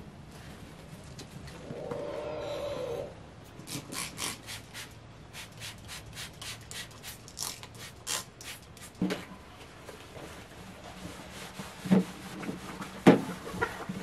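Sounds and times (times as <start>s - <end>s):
spray bottle hissing: 3.7s - 9.0s.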